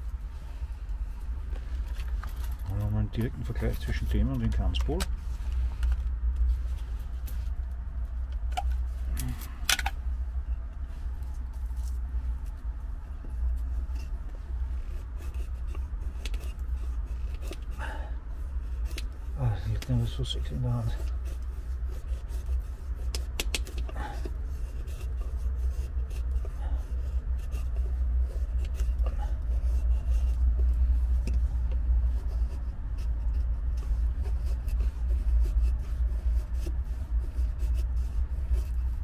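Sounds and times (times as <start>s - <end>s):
low rumble: 0.0s - 23.1s
knife scraping wooden stick: 11.2s - 39.0s.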